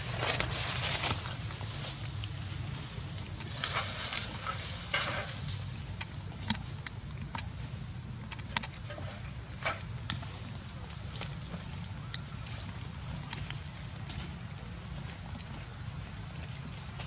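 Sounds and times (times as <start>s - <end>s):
dry leaves rustling and crackling: 0.0s - 5.7s
steady low rumble: 0.0s - 17.0s.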